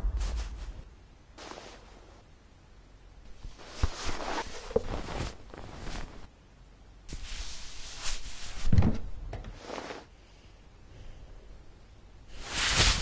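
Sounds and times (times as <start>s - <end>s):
cloth rustling: 0.1s - 2.2s, 3.3s - 6.3s, 9.6s - 10.1s.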